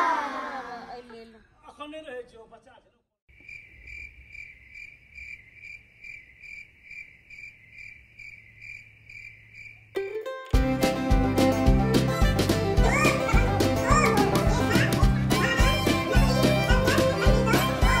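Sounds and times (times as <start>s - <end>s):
cricket chirping: 3.3s - 10.0s
music: 10.0s - 18.0s.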